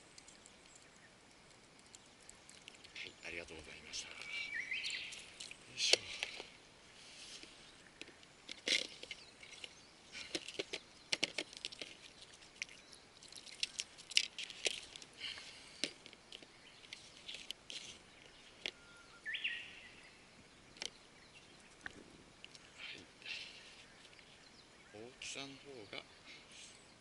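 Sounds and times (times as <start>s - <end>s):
water splashes and drips: 0.0s - 6.6s, 8.7s - 18.4s
bird chirp: 0.0s - 27.0s.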